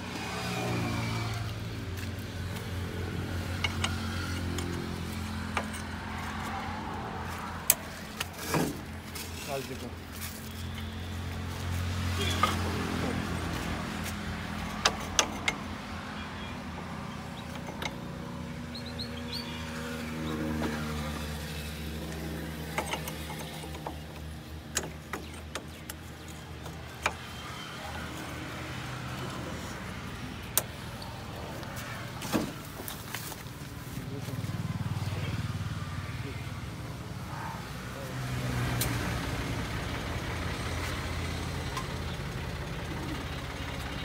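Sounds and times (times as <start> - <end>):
metal clinks and knocks: 3.4 - 6.6, 22.5 - 28.2
tractor diesel engine idling: 39.3 - 44.0.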